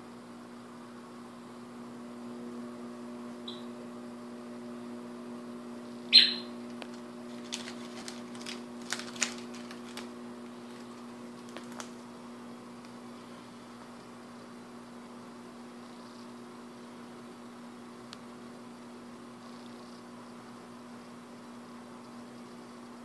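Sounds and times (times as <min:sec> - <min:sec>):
steady low hum: 0:00.0 - 0:23.0
bird chirp: 0:03.4 - 0:03.7, 0:06.1 - 0:06.6
cockatoo squawk falling in pitch: 0:06.1 - 0:06.5
beak clicking and crunching: 0:07.3 - 0:12.0.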